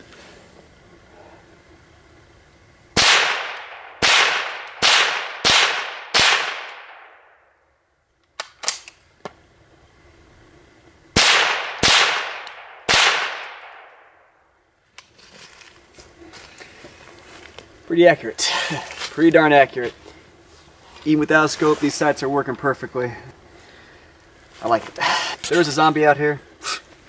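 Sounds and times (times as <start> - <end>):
rifle shots with echo: 3.0 - 7.4, 11.2 - 14.2.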